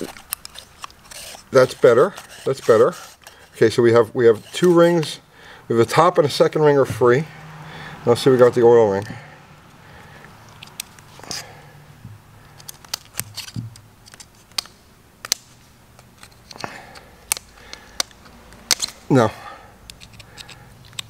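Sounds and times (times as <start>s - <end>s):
steel pick clicking and scraping metal: 0.0s - 3.6s, 12.5s - 19.0s, 19.8s - 21.0s.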